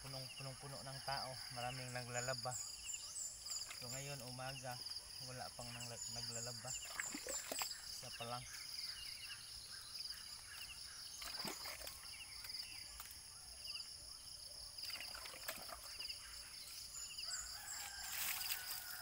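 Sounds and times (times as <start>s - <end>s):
water poured from a pitcher: 6.7s - 7.8s, 11.1s - 12.2s, 14.8s - 16.0s, 17.8s - 19.0s
light splashes from hands washing: 6.8s - 7.8s, 11.2s - 13.2s.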